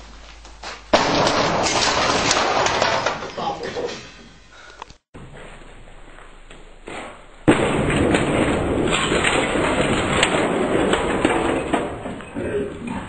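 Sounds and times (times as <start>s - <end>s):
sudden loud crash: 0.9s - 3.3s, 7.0s - 12.4s
dense clattering knocks: 0.9s - 4.4s, 6.8s - 13.0s.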